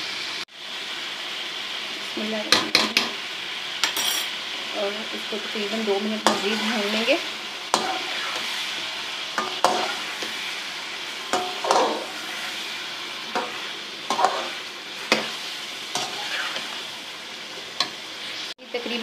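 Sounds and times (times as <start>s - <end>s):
chicken sizzling in hot oil: 0.0s - 19.0s
spoon scraping and knocking pan: 2.5s - 3.2s, 6.2s - 6.8s, 7.7s - 8.5s, 9.3s - 10.4s, 11.3s - 12.4s, 13.3s - 16.8s, 17.8s - 18.0s.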